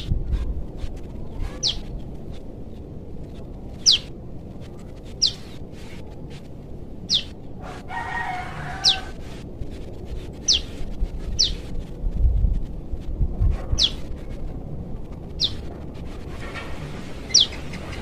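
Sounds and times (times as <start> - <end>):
bird short high downward calls: 1.3 - 1.9, 5.2 - 5.5, 8.0 - 9.2
rooster crowing: 7.6 - 9.2.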